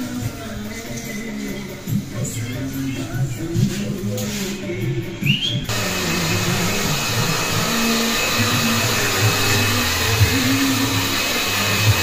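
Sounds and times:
hair dryer blowing: 0:05.7 - 0:12.0.

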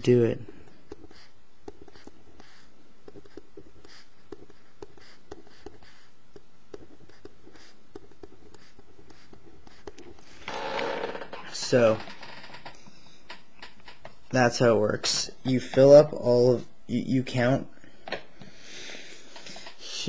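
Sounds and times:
pen scratching on paper: 0:00.5 - 0:10.7.

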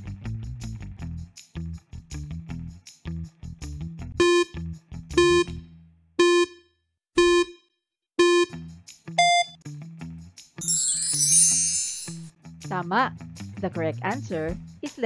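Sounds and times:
short electronic beeps: 0:07.2 - 0:07.6, 0:08.2 - 0:08.5, 0:09.2 - 0:09.6.

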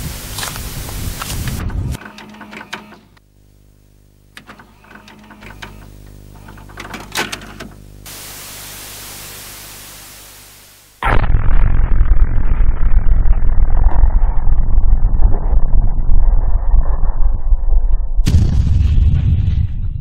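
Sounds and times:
tape static hiss: 0:00.0 - 0:13.5
low steady hum: 0:00.0 - 0:18.8
cassette mechanism clicks and clunks: 0:01.6 - 0:03.2, 0:04.3 - 0:07.9.

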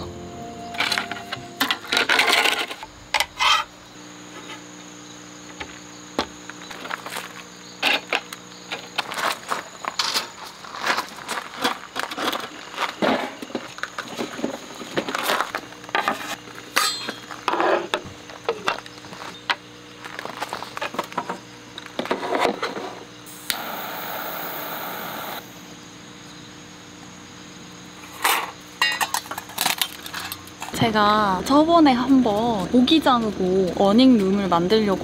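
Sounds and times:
jet lighter hiss: 0:23.3 - 0:25.7.

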